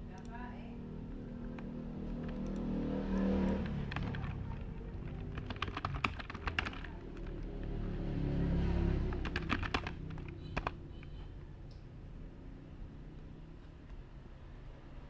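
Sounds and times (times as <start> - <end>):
computer keyboard typing: 1.1 - 7.8, 9.0 - 11.3.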